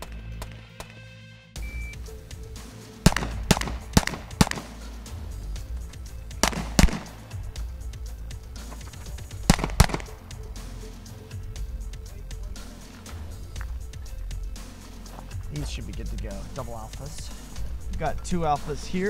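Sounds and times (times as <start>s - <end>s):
background music: 0.0s - 19.0s
pistol shots: 3.0s - 4.9s, 6.4s - 7.4s, 9.5s - 10.2s.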